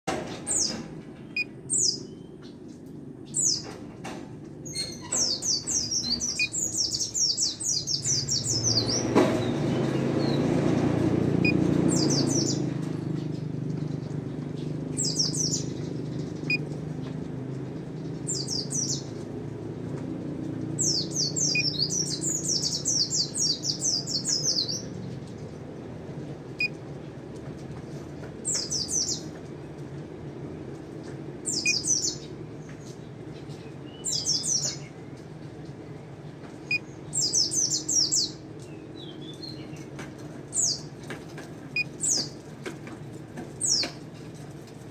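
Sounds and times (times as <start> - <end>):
bird singing fast trills: 4.6 - 10.5, 11.4 - 12.6, 14.9 - 16.7, 18.1 - 19.2, 20.8 - 25.0, 31.5 - 32.3.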